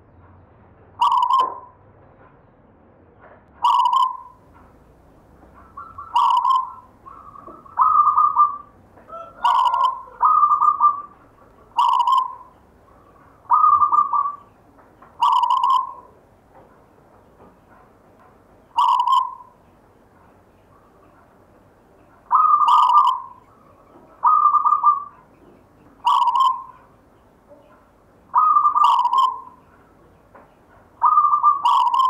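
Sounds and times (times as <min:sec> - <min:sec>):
dove cooing: 0:01.0 - 0:01.7, 0:03.6 - 0:04.4, 0:05.4 - 0:14.6, 0:15.2 - 0:16.2, 0:18.7 - 0:19.6, 0:22.1 - 0:30.1, 0:31.0 - 0:32.0.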